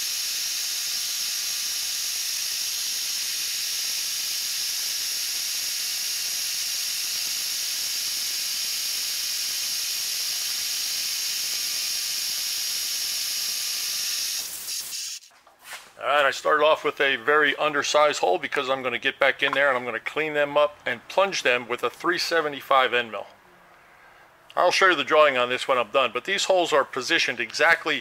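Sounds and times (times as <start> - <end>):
drill cutting steel hiss: 0.0 - 15.3.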